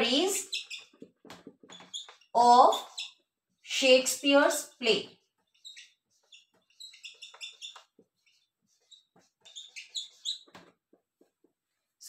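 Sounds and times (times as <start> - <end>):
marker squeaking on whiteboard: 0.0 - 11.6
marker tapping: 5.4 - 11.5.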